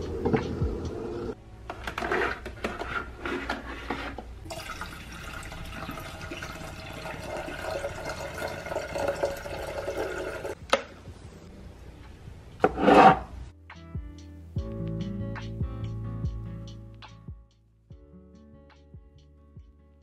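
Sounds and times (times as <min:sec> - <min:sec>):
water pouring into kettle: 0:04.5 - 0:10.6.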